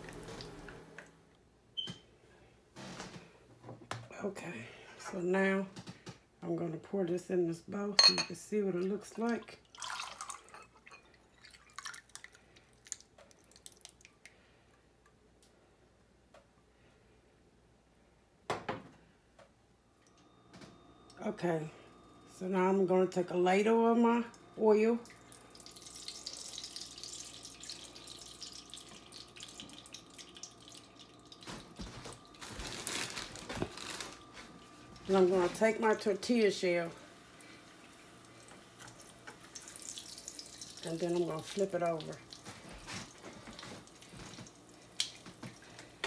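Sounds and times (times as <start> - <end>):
oil dripping into glass bowl: 9.7 - 14.2, 25.0 - 31.5
oil sizzling and crackling: 25.0 - 46.0.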